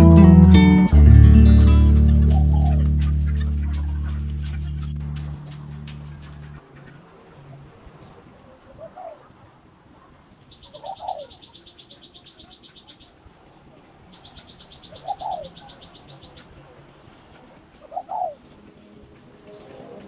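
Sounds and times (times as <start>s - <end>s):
high rapid trill: 0.0s - 6.6s
dove cooing: 2.2s - 5.0s, 8.0s - 9.4s, 10.7s - 11.5s, 14.8s - 16.6s, 17.4s - 20.0s.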